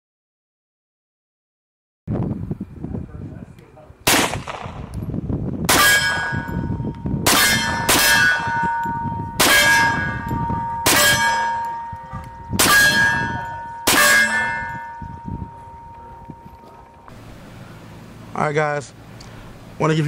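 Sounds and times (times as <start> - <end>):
suppressed pistol shots: 4.1 - 5.0
steel target ringing clang: 5.7 - 17.2.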